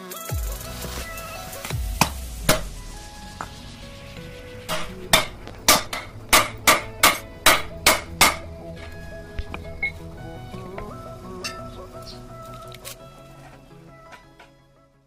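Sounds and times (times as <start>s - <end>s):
hammer striking steel drift: 1.7s - 8.6s.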